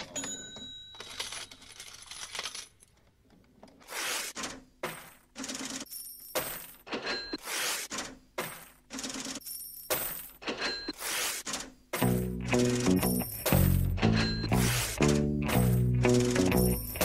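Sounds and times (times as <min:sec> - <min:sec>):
coins jingling: 0:12.6 - 0:17.0.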